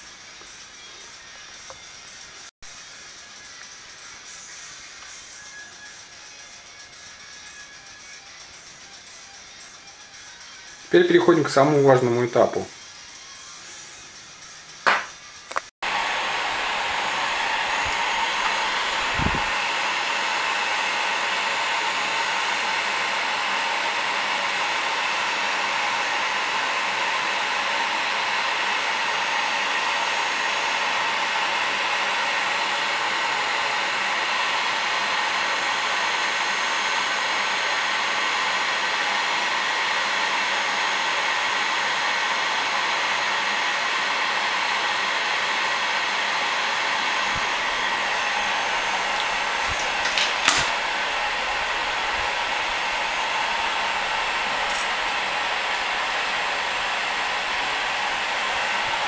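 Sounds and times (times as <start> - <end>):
heat gun fan rushing: 15.8 - 59.0.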